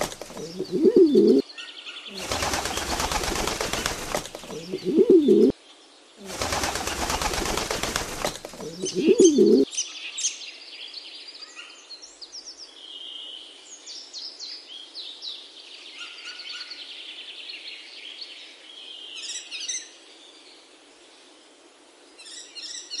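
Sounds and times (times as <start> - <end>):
songbirds chirping and whistling: 0.0 - 5.5, 6.2 - 11.8.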